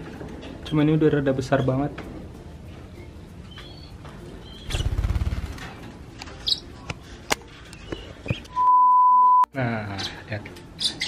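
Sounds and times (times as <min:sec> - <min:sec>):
lovebirds chirping: 0:03.4 - 0:05.0, 0:06.3 - 0:06.9, 0:07.6 - 0:08.6, 0:09.9 - 0:11.0
steady pure beep tone: 0:08.5 - 0:09.5.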